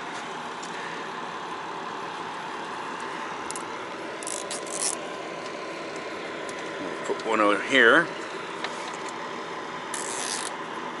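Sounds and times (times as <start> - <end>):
engine hum: 0.0 - 11.0
zip tie ratcheting: 4.2 - 5.0, 9.9 - 10.6.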